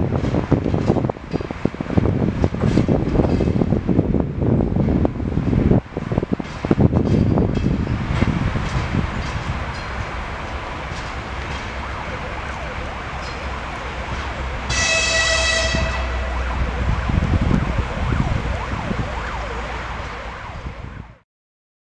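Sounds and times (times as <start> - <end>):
diesel locomotive rumbling: 0.0 - 21.2
high-pitched horn blast: 14.7 - 16.8.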